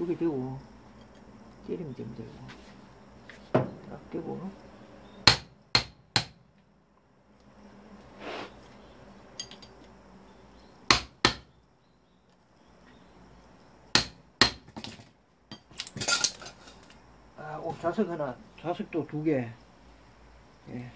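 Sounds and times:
light metal clinks: 0:09.3 - 0:09.8.

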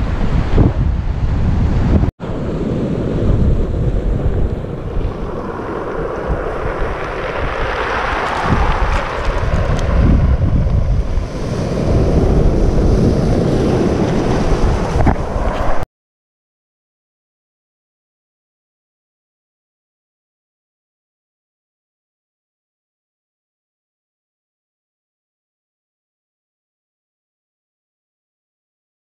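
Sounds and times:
wind buffeting microphone: 0:00.0 - 0:15.8
surf washing up pebble beach: 0:02.2 - 0:15.8.

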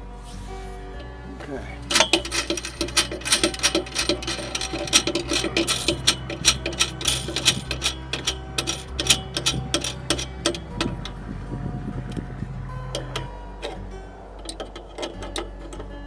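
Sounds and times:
ratchet wrench clicking: 0:01.9 - 0:11.0, 0:14.4 - 0:16.0.

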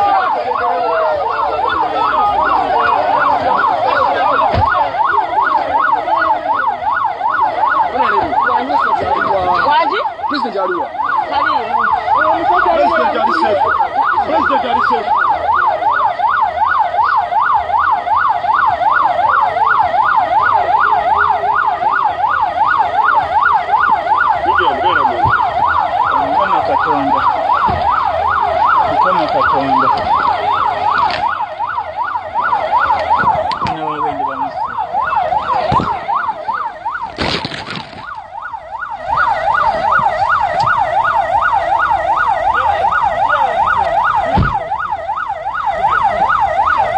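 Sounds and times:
emergency siren yelping: 0:00.0 - 0:46.9.

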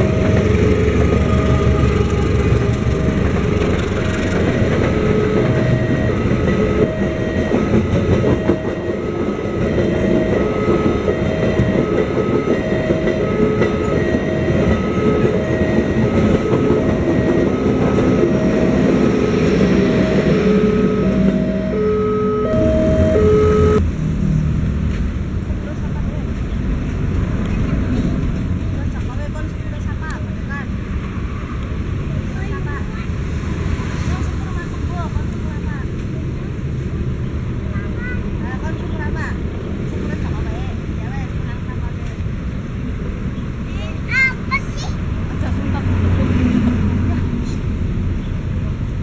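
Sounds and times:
crossing warning alarm beeping: 0:00.0 - 0:23.8
train wheels rumbling and clacking: 0:00.0 - 0:23.8.

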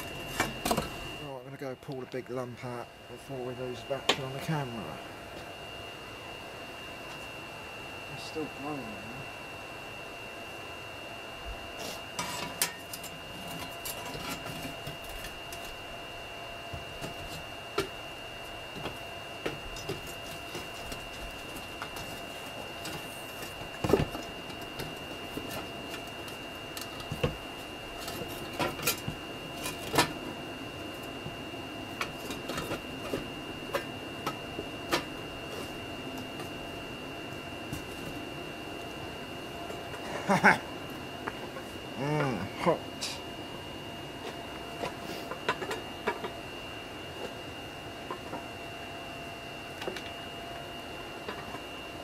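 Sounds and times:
steady high whine: 0:00.0 - 0:52.0
metal tool scraping coals: 0:11.8 - 0:15.8.

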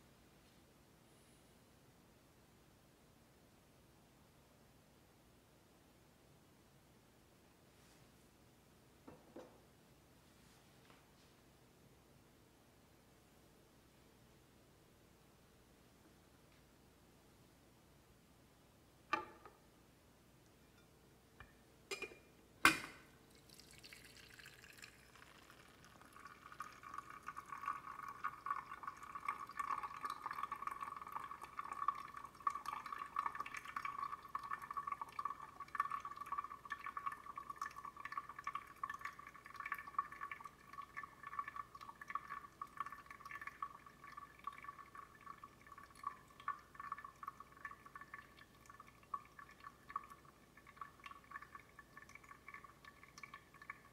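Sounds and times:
glass clinks: 0:20.6 - 0:23.1
coffee dripping into server: 0:20.8 - 0:53.9.

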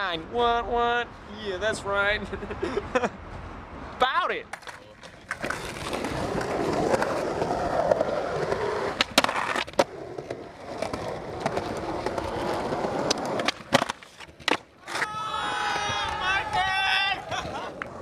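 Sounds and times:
skateboard wheels rolling on concrete: 0:01.0 - 0:18.0
skateboard clacking on concrete: 0:04.5 - 0:15.2.

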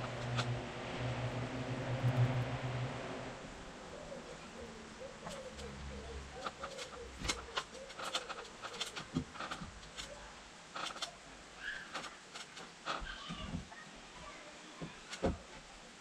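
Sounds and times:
pigeon cooing: 0:03.8 - 0:09.1.

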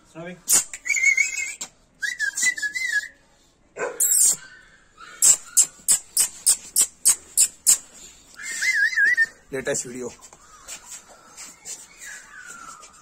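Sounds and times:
tongue clicks: 0:00.5 - 0:01.0, 0:04.0 - 0:04.4, 0:05.2 - 0:07.9
person whistling: 0:00.8 - 0:03.2, 0:08.4 - 0:09.4.

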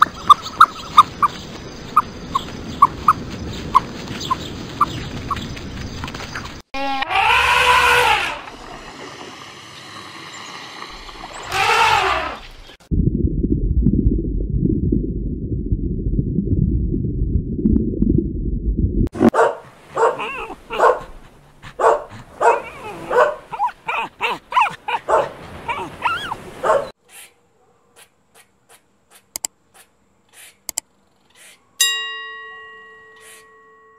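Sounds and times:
elephant trumpeting: 0:06.8 - 0:08.5, 0:11.4 - 0:12.5
low rumbling noise: 0:12.7 - 0:19.3
dog barking: 0:19.3 - 0:28.1
ringing bell-like chime: 0:31.8 - 0:33.9.

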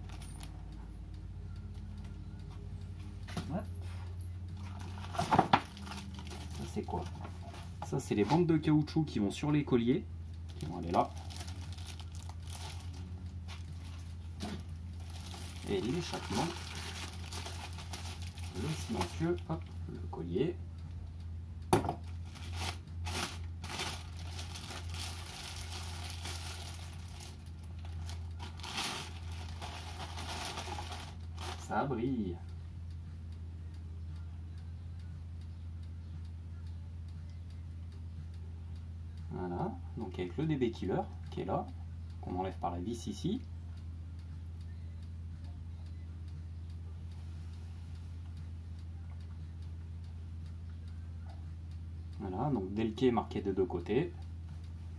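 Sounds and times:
faint regular ticking: 0:00.0 - 0:05.0, 0:05.8 - 0:54.9
steady low hum: 0:00.0 - 0:54.9
plastic film crinkling: 0:04.6 - 0:07.7, 0:10.5 - 0:19.4, 0:22.2 - 0:31.7.

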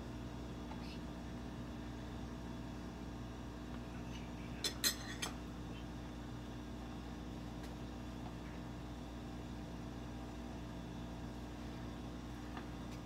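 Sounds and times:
steady low hum: 0:00.0 - 0:13.0
kitchenware clinking: 0:04.6 - 0:05.4.

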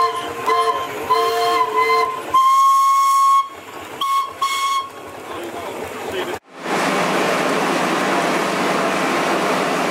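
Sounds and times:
steam whistles blowing: 0:00.0 - 0:05.1.

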